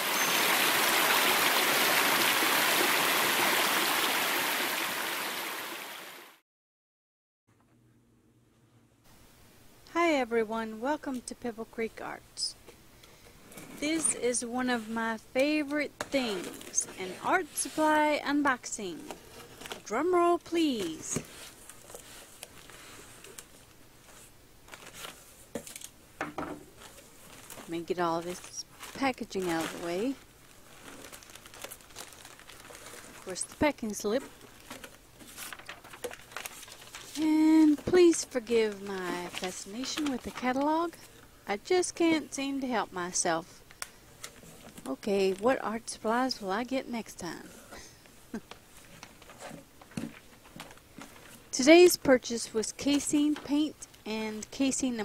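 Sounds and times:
water rushing over rocks: 0:00.0 - 0:06.3
cardboard and tape rustling: 0:19.0 - 0:19.9, 0:20.6 - 0:26.0, 0:26.7 - 0:41.2, 0:47.7 - 0:51.5.

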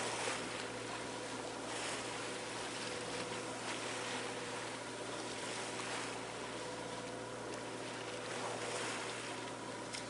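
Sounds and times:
faint steady hum: 0:00.0 - 0:10.0
water rushing past boat: 0:00.0 - 0:10.0.

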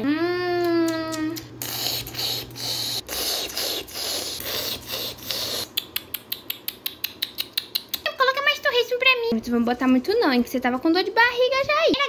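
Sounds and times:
scraping and crunching while eating: 0:01.1 - 0:06.0.

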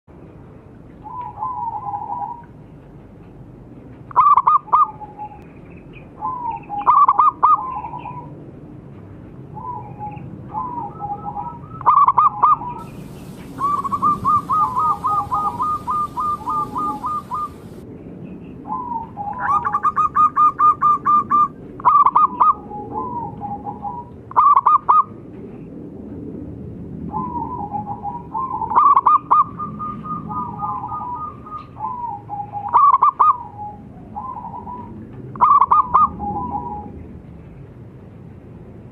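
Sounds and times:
doves cooing and trilling: 0:01.0 - 0:02.5, 0:04.1 - 0:05.4, 0:06.2 - 0:08.3, 0:09.6 - 0:17.8, 0:18.6 - 0:25.2, 0:27.1 - 0:37.1.

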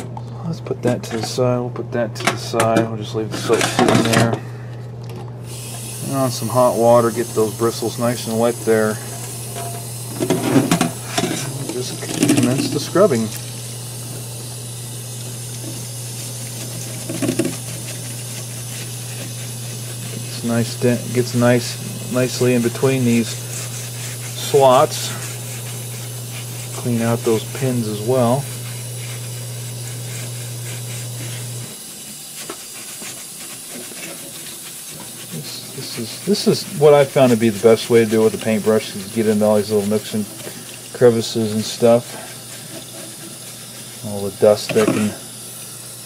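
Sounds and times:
steady low hum: 0:00.0 - 0:46.0
paintbrush scrubbing wet board: 0:06.0 - 0:09.1, 0:15.3 - 0:45.2
tap water running into sink: 0:09.1 - 0:33.1.

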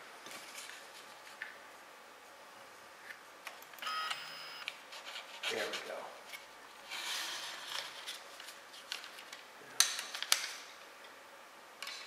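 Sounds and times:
paper rustling and scraping: 0:04.9 - 0:09.4.

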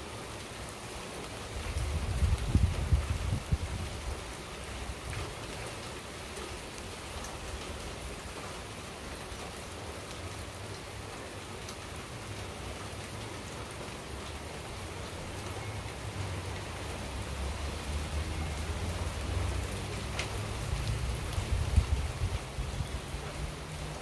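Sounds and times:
steady rain falling: 0:00.0 - 0:24.0
raindrop ticks: 0:15.1 - 0:24.0.

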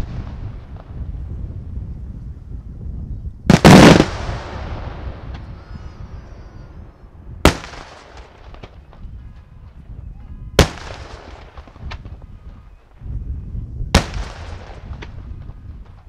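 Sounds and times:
fireworks bursting: 0:00.0 - 0:01.8, 0:03.5 - 0:09.8, 0:10.6 - 0:13.1, 0:13.9 - 0:16.0.

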